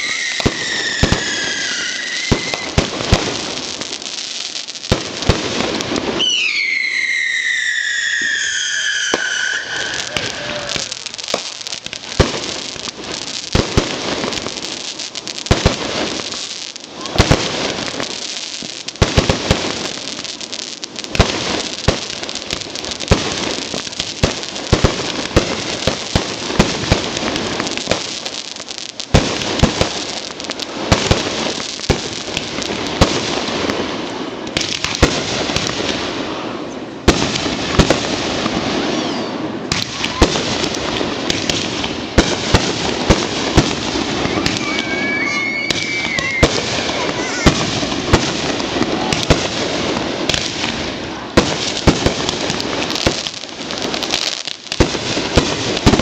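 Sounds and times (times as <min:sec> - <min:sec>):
fireworks bangs: 0:00.0 - 0:56.0
fireworks crackle: 0:00.0 - 0:56.0.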